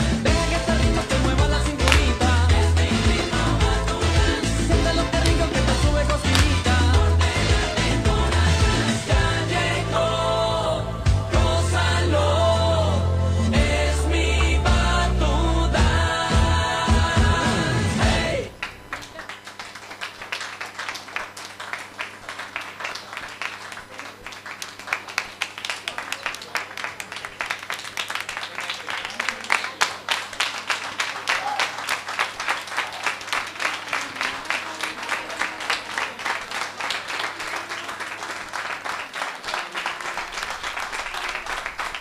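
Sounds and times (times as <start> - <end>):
audience applauding: 0.0 - 9.1, 18.5 - 42.0
low hum: 0.0 - 19.2.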